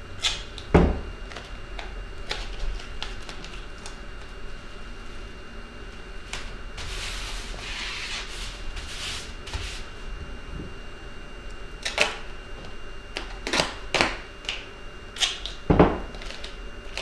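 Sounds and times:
hands rubbing tape on bubble wrap: 6.3 - 9.9.

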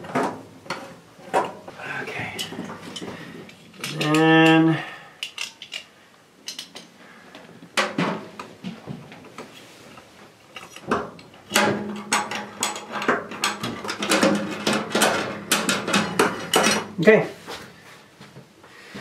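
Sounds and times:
metal drain parts clicking and scraping: 2.3 - 6.9, 10.5 - 17.0.

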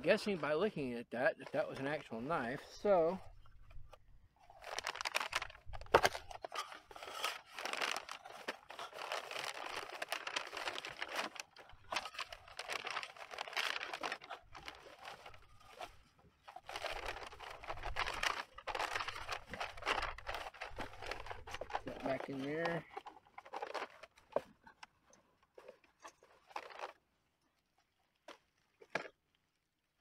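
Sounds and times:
paper crinkling and tearing: 4.5 - 24.4, 25.6 - 27.0.

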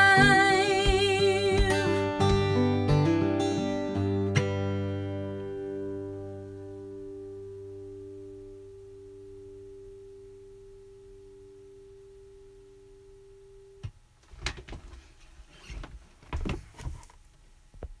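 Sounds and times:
acoustic guitar chord ringing: 0.0 - 13.8
rustling and knocks near microphone: 14.2 - 17.2.

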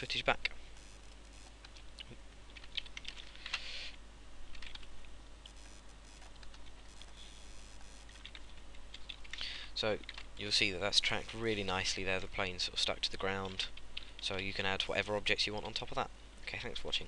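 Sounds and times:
low steady hum: 0.0 - 17.0
computer keyboard clicks: 2.5 - 3.6, 4.5 - 4.9, 8.1 - 9.4, 10.0 - 10.3.

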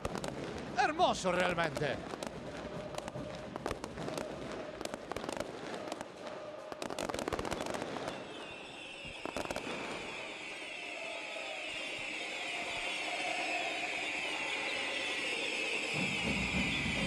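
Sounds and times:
firecrackers crackling: 0.0 - 17.0
high-pitched whistling: 8.1 - 17.0.

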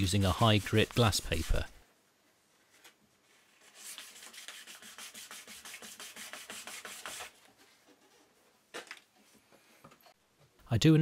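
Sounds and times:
sandpaper rubbing on wood: 0.0 - 1.8, 3.6 - 7.4.

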